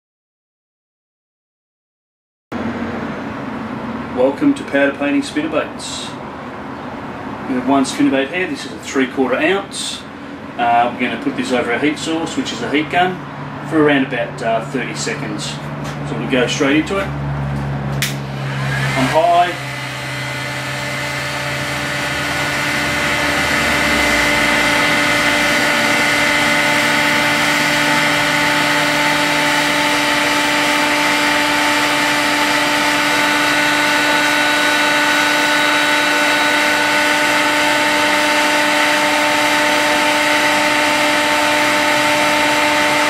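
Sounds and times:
heat gun blowing with a whine: 18.0 - 43.0.

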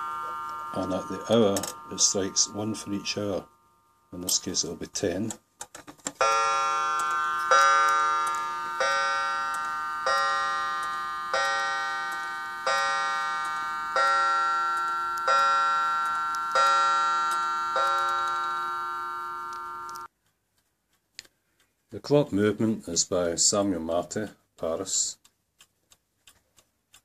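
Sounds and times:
clock striking on a gong: 0.0 - 3.6, 6.2 - 20.1.

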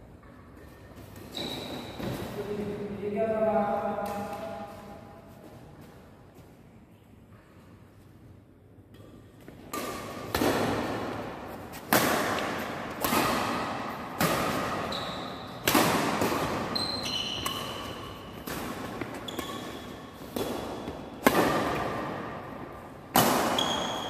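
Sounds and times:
shoes squeaking on court: 0.6 - 2.6, 14.7 - 15.6, 16.4 - 21.2, 23.5 - 24.0
rackets striking shuttlecock: 8.9 - 24.0.

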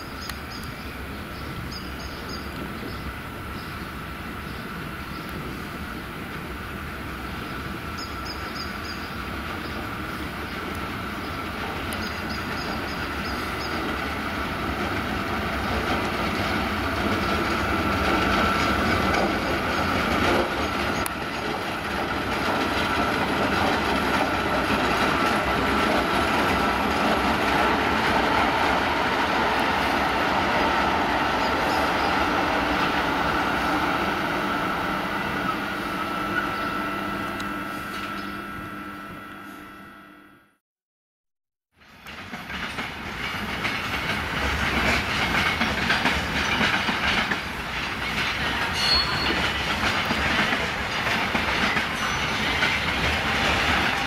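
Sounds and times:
freight train wheels rumbling: 0.0 - 38.7, 41.7 - 54.0
high ringing: 48.7 - 49.6.

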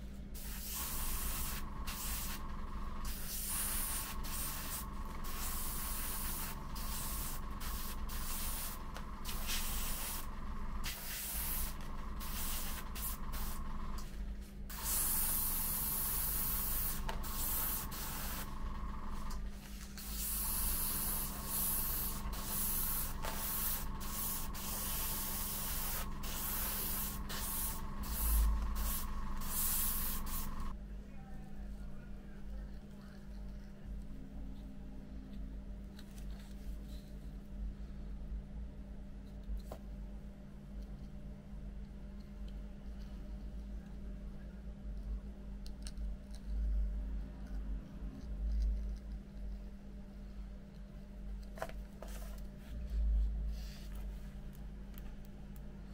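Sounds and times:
steady low hum: 0.0 - 55.9
airbrush hissing: 0.4 - 13.9, 14.7 - 19.3, 20.0 - 30.7.

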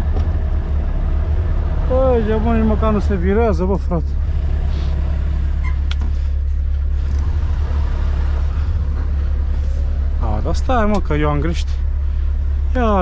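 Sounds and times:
diesel truck engine rumbling: 0.0 - 13.0.

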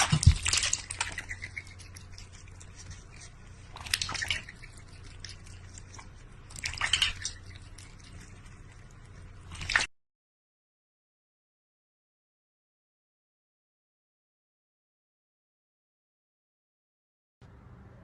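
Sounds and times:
cat lapping water: 0.0 - 9.9
steady low hum: 0.0 - 9.9.

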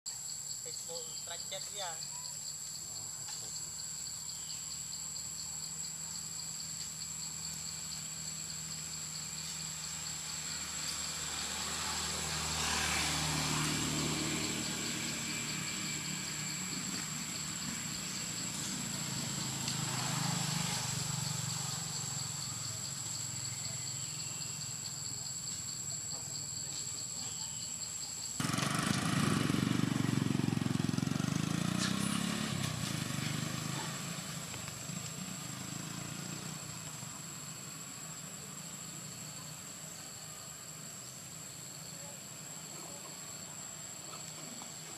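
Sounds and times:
high-pitched insect drone: 0.1 - 28.5
vehicles passing on road: 0.7 - 44.9.

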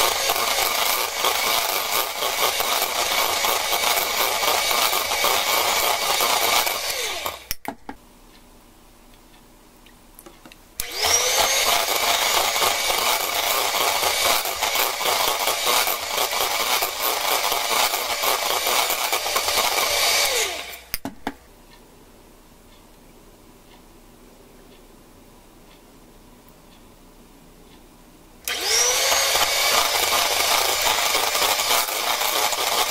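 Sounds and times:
electric hand mixer beating batter: 0.0 - 7.5, 10.8 - 20.8, 28.5 - 32.9.

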